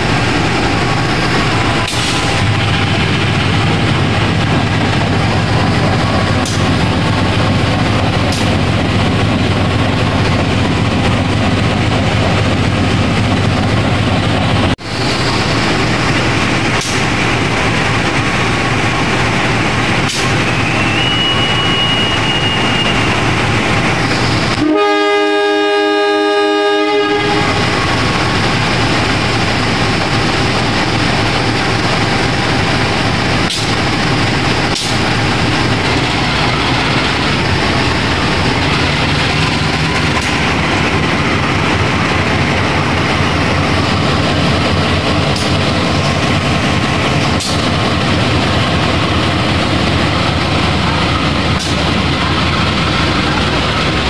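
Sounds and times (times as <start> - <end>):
diesel engine running: 0.0 - 54.0
thin high whistle: 20.2 - 23.4
locomotive horn blast: 24.5 - 27.8.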